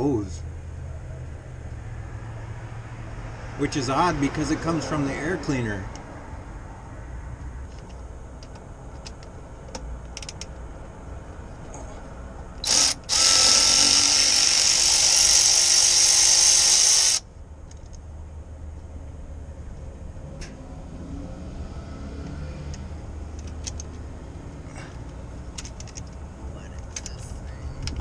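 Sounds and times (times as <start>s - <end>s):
power tool whirring: 12.6s - 17.2s
handling clicks: 22.7s - 24.0s, 25.0s - 26.2s.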